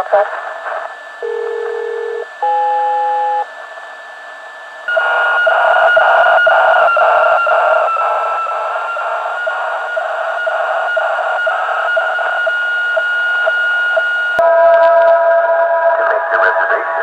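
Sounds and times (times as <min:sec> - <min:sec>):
radio static: 0:00.0 - 0:03.4, 0:15.9 - 0:17.0
dense buzz of radio tones: 0:00.0 - 0:17.0
short steady beep: 0:01.2 - 0:03.4.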